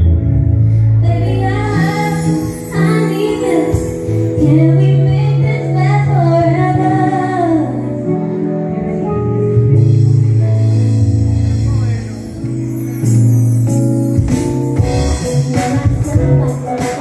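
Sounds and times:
live band playing: 0.0s - 17.0s
woman singing: 1.0s - 8.1s, 15.2s - 17.0s.

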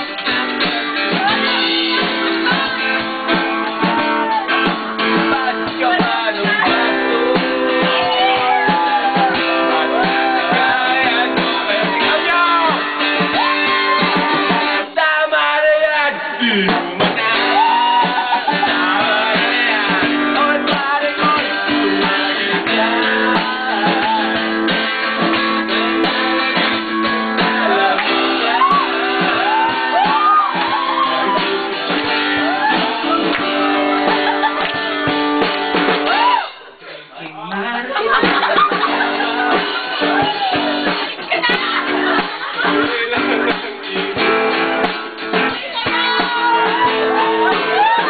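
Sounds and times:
drum kit: 0.0s - 36.8s, 38.0s - 48.0s
acoustic guitar strumming: 0.0s - 36.9s, 38.1s - 48.0s
man singing into microphone: 5.1s - 13.1s, 14.8s - 24.7s, 39.0s - 44.7s.

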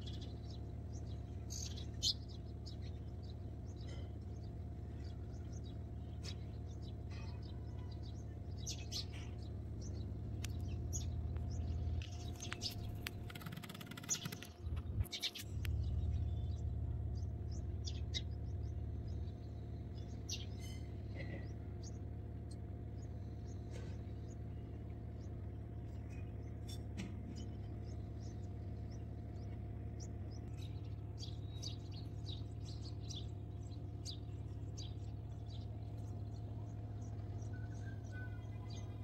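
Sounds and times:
birds chirping: 0.0s - 39.0s.

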